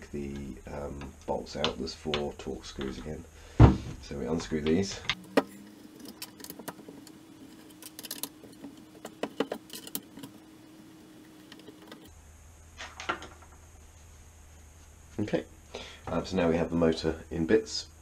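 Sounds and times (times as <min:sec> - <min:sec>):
faint steady hum: 0:00.0 - 0:18.0
screwdriver clicking and scraping: 0:05.1 - 0:12.1.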